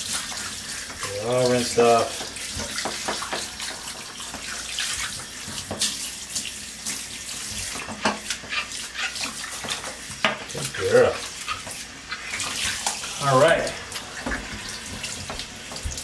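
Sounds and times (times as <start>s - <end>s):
water splashing in bathtub: 0.0s - 16.0s
water spraying hiss: 10.5s - 16.0s.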